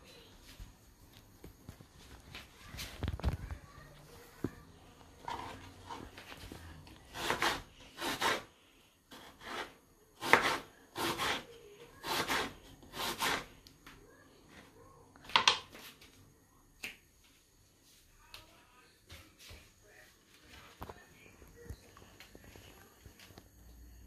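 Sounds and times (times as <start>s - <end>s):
knife slicing onion on wooden board: 7.1s - 8.5s, 9.1s - 13.5s.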